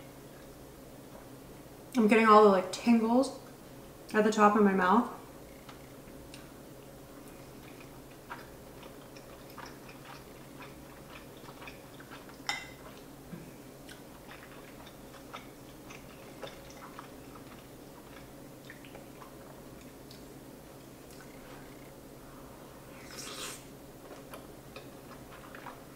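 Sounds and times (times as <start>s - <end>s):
faint steady hum: 0.0s - 25.9s
soft chewing: 5.5s - 22.0s, 22.9s - 25.9s.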